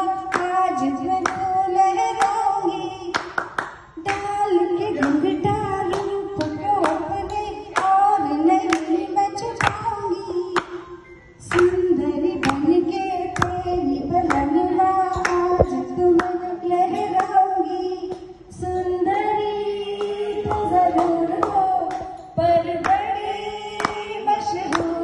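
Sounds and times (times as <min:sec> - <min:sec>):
hand claps: 0:01.2 - 0:01.4, 0:03.1 - 0:04.3, 0:05.9 - 0:07.1, 0:07.8 - 0:08.0, 0:08.7 - 0:08.9, 0:09.6 - 0:09.8, 0:10.6 - 0:10.8, 0:20.0 - 0:22.2, 0:23.8 - 0:25.0.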